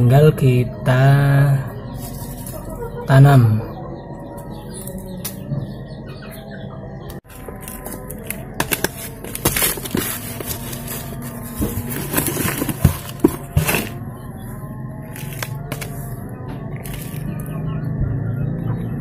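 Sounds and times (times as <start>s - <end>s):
soil rustling and crackling: 7.3s - 14.0s, 15.1s - 16.0s.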